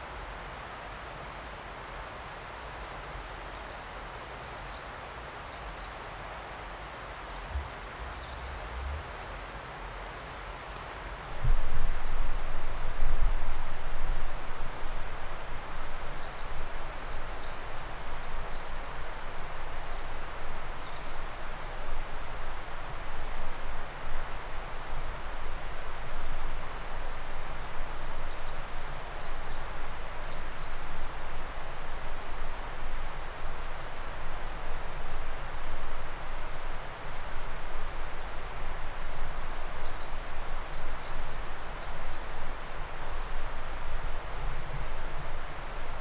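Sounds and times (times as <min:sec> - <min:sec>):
steady rushing rumble: 0:07.5 - 0:09.8.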